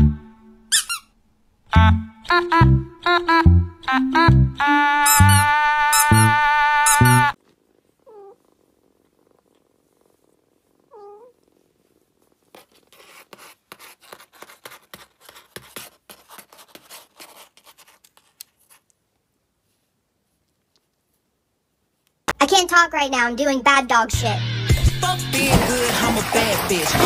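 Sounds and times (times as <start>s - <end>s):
kitten mewing: 5.1s - 7.4s, 8.0s - 8.5s, 10.9s - 11.4s
cats purring pulses: 7.3s - 15.2s.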